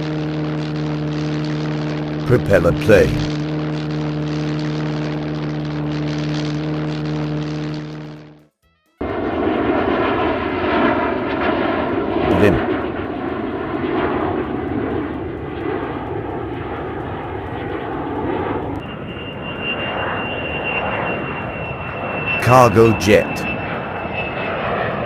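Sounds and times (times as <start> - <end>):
aircraft engine drone: 0.0 - 25.0
high-pitched jet whine: 14.8 - 25.0.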